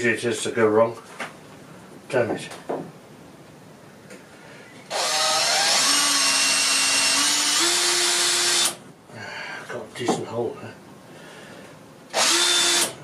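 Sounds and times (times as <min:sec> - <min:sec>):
small electric drill whining: 0:04.9 - 0:08.8, 0:12.1 - 0:13.0.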